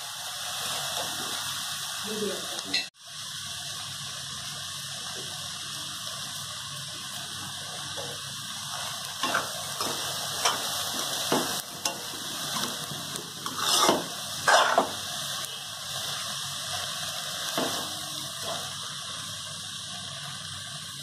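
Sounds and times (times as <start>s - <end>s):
steady hiss: 0.0s - 21.0s
metal spatula scraping pan: 13.4s - 15.0s.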